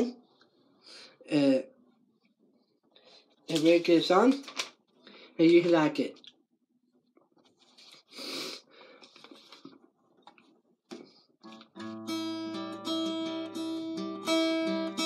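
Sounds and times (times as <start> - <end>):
acoustic guitar strummed: 11.4 - 15.0.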